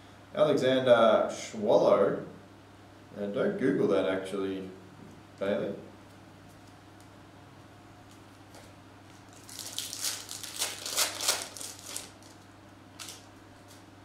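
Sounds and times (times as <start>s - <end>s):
foil wrapper tearing and crinkling: 9.2s - 13.8s.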